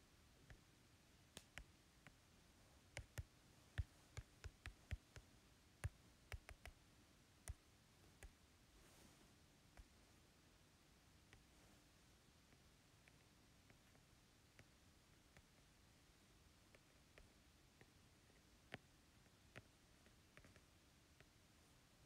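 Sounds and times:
light keystroke clicks: 0:02.9 - 0:06.8.

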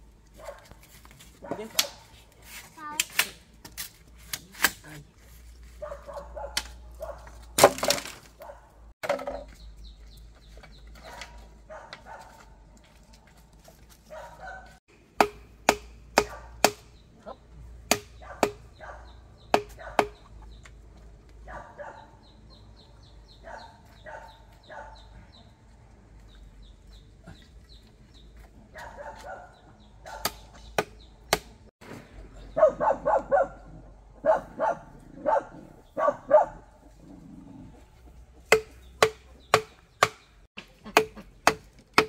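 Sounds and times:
dog barking: 0:00.4 - 0:00.8, 0:05.8 - 0:07.4, 0:08.4 - 0:08.8, 0:11.0 - 0:12.5, 0:14.1 - 0:14.8, 0:16.2 - 0:16.6, 0:18.2 - 0:20.1, 0:21.4 - 0:22.3, 0:23.4 - 0:25.2, 0:28.7 - 0:30.4, 0:32.5 - 0:36.9
sharp chopping strikes: 0:15.2 - 0:16.9, 0:17.8 - 0:18.7, 0:19.5 - 0:20.2, 0:30.2 - 0:31.6, 0:38.5 - 0:42.0
chickens clucking: 0:18.2 - 0:21.2.

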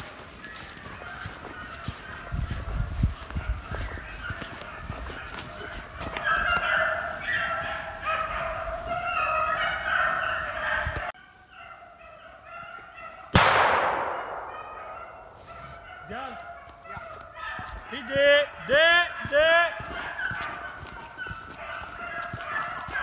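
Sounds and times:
hounds baying: 0:00.0 - 0:23.0
gunshot with echo: 0:13.3 - 0:15.6.

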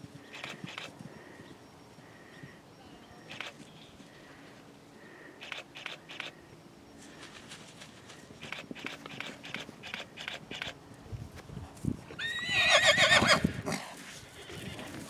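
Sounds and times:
hoofbeats galloping on grass: 0:07.0 - 0:15.0
horse whinnying: 0:12.2 - 0:14.9.

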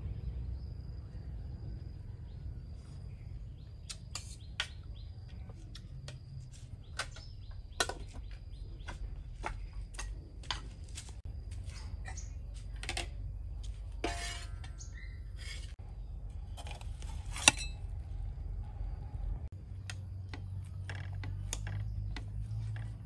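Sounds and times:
steady low rumble: 0:00.0 - 0:04.0, 0:15.7 - 0:20.8.

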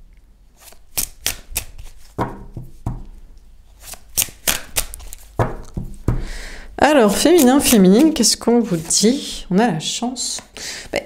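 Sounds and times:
cards being shuffled: 0:00.6 - 0:06.2, 0:07.1 - 0:09.2.

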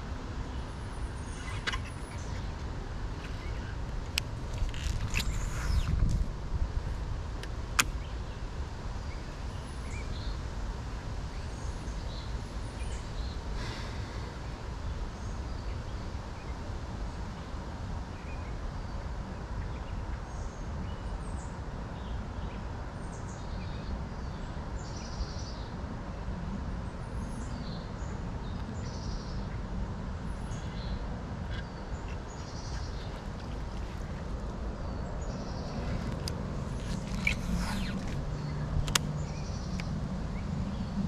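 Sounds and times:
steady low rumble: 0:00.0 - 0:15.8, 0:28.2 - 0:41.0
small birds chirping: 0:00.0 - 0:16.7, 0:26.9 - 0:41.0.

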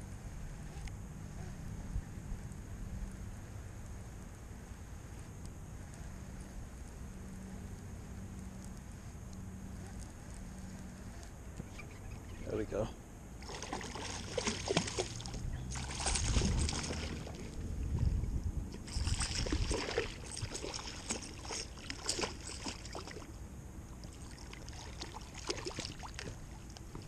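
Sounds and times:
fish splashing at water surface: 0:13.4 - 0:17.7, 0:18.8 - 0:23.3, 0:24.0 - 0:26.6.

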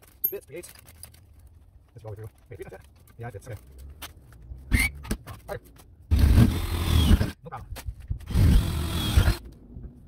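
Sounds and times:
power drill boring: 0:06.2 - 0:07.3, 0:08.3 - 0:09.4.

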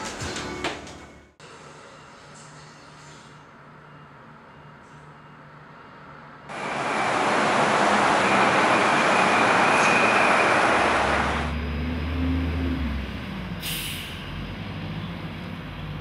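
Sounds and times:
loud steady rushing noise: 0:06.5 - 0:11.6
fire truck engine rumbling: 0:06.5 - 0:16.0
air brake hiss: 0:13.6 - 0:14.3.

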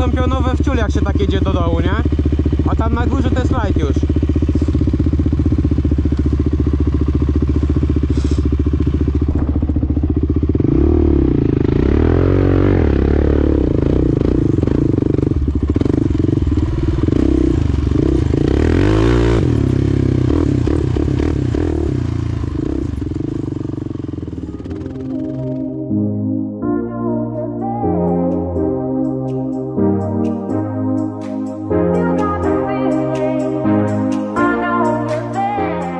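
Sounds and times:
quad bike engine idling and revving: 0:00.0 - 0:25.8.

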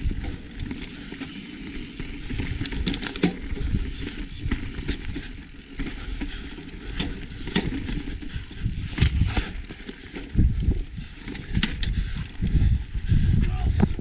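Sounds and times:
bike tyres rumbling on dirt: 0:00.0 - 0:14.0
bike clacking on rocks: 0:00.2 - 0:10.5.

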